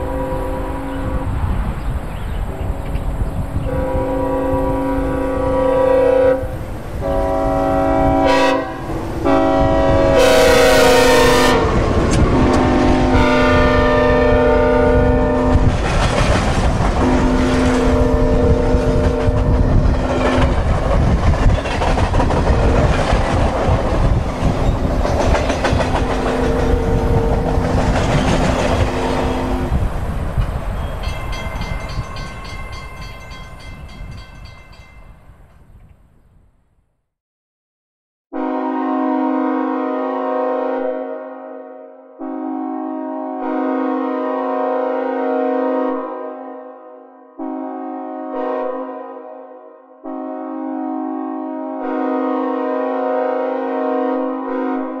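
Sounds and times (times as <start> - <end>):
train horn blasts: 0.0 - 1.7, 3.6 - 15.8, 17.0 - 20.6, 24.6 - 29.9, 38.3 - 55.0
train rumbling and clattering: 0.0 - 5.6, 6.4 - 35.6.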